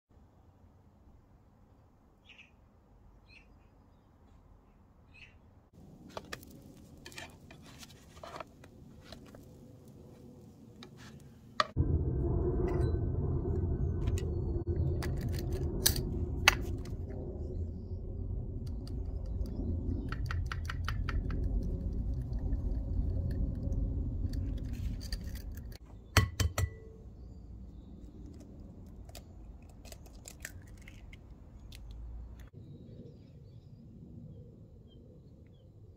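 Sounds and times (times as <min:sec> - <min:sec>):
loud low rumble: 0:11.7 - 0:25.8.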